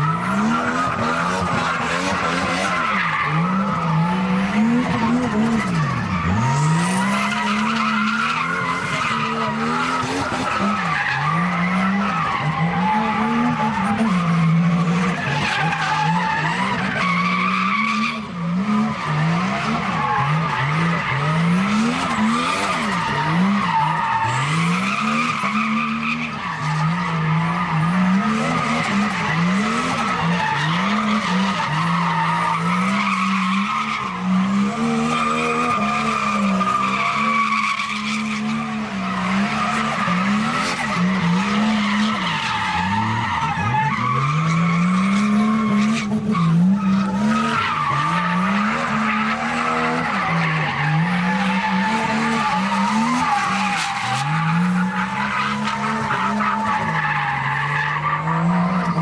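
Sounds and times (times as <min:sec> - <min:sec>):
car engine revving hard: 0:00.0 - 0:59.0.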